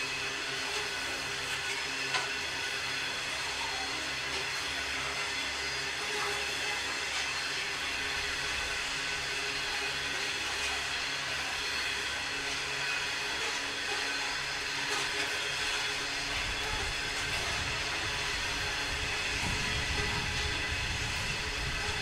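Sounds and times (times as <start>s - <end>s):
train drone on rails: 0.0s - 22.0s
deep train rumble: 16.8s - 22.0s.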